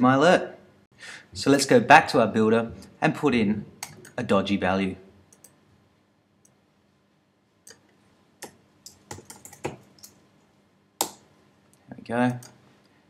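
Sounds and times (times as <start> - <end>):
typing on keyboard: 8.4 - 10.2.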